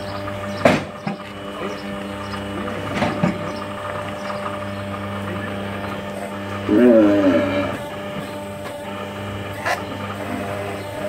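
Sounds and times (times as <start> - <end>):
hydraulic power unit humming: 0.0 - 11.0
sharp knocks of a crush: 0.6 - 1.2.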